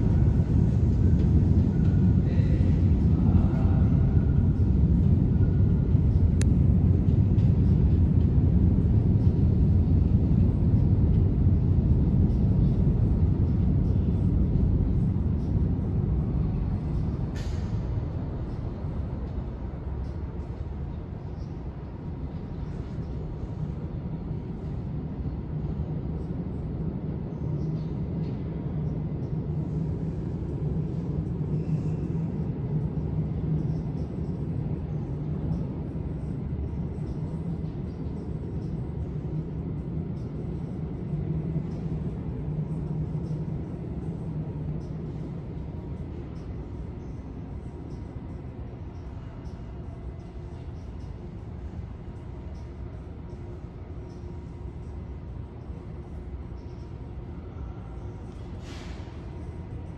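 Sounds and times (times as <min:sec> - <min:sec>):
low steady hum: 0:00.0 - 0:59.9
subway train rumble: 0:00.0 - 0:59.9
short hiss: 0:58.6 - 0:59.2.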